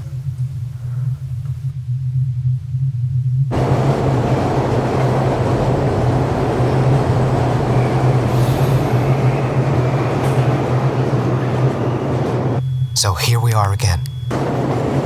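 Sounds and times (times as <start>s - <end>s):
low steady hum: 0.0s - 3.6s
train rushing past in tunnel: 3.5s - 12.8s.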